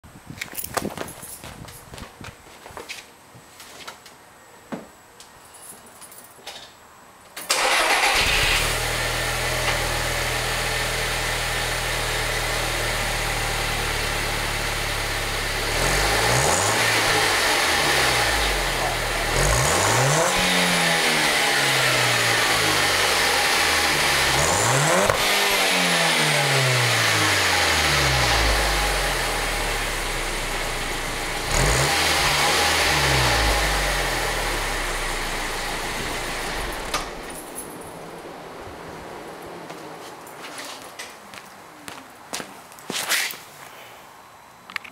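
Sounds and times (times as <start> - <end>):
car engine revving: 7.5 - 38.6
car engine starting and idling: 7.5 - 39.6.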